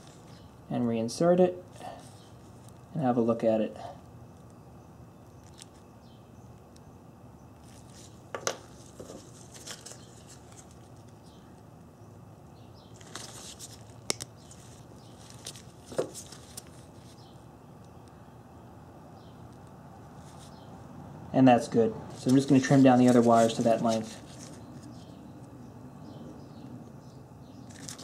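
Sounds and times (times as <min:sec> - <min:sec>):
handling rustles and clicks: 0:07.6 - 0:11.2, 0:12.9 - 0:17.3, 0:27.6 - 0:28.0.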